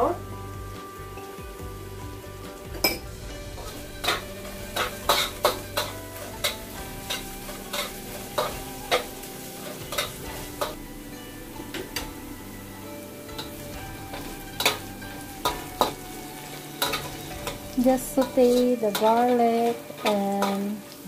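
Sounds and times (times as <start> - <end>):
garlic sizzling in hot oil: 0.0 - 21.0
spatula clinking against wok: 2.8 - 10.8, 13.3 - 20.7.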